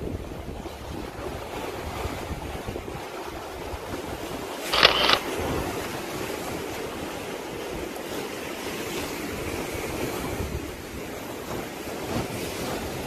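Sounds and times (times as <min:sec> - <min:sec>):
wind buffeting microphone: 0:00.0 - 0:04.6.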